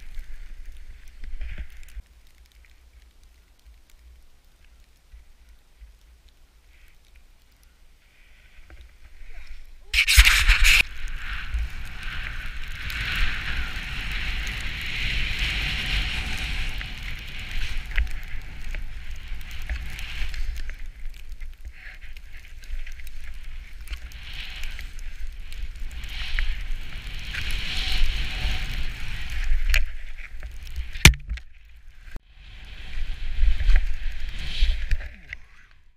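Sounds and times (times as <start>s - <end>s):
skis hissing through snow: 8.3s - 31.1s, 32.0s - 35.1s
sharp click: 10.0s - 10.9s.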